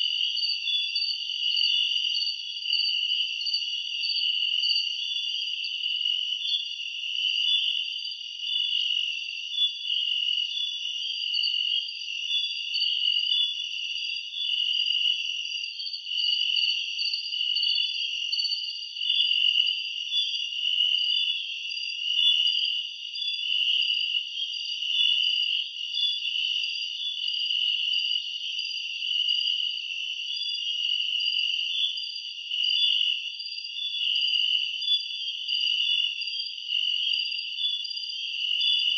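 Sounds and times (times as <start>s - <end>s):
insects calling at night: 0.0s - 38.9s.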